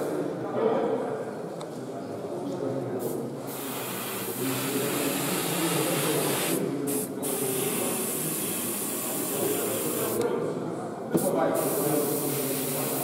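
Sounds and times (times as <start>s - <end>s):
airbrush spraying: 3.5s - 10.2s, 11.2s - 13.0s.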